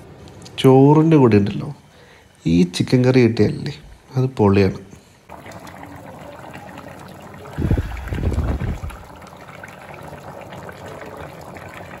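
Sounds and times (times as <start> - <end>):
curry bubbling: 5.3 - 12.0.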